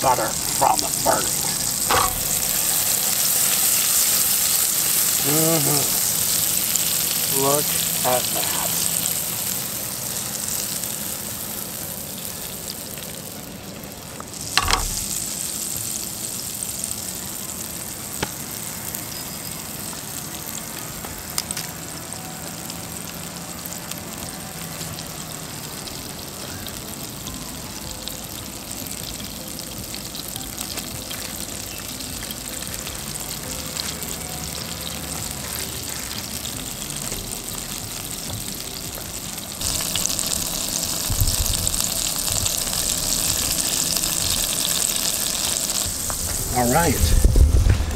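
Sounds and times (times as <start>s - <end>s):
butter and oil sizzling in a pan: 0.0s - 47.9s
sharp knock: 14.6s - 15.0s.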